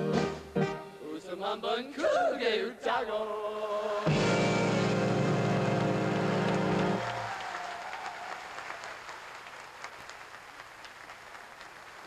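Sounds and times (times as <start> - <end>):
audience applauding: 4.9 - 12.0.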